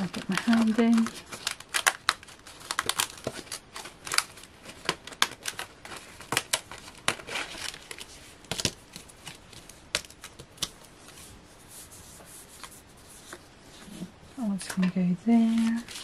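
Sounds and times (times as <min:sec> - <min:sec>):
stiff card clicking and crackling: 0:00.0 - 0:10.8
card sheet rustling: 0:00.0 - 0:14.1, 0:14.7 - 0:16.0.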